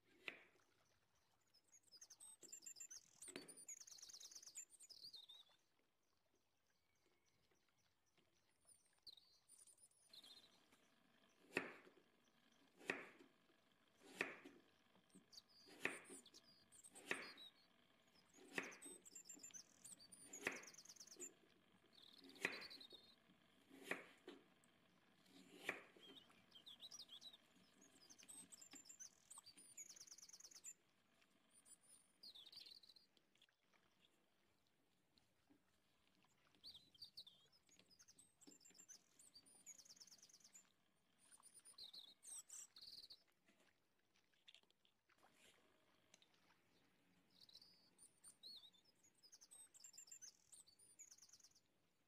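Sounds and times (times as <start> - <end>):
faint birds chirping: 0.0 - 52.0
knife chopping on cutting board: 11.5 - 11.9, 12.8 - 13.2, 14.0 - 14.6, 15.7 - 16.2, 17.0 - 17.4, 18.4 - 18.8, 22.3 - 22.7, 23.7 - 24.4, 25.3 - 26.0.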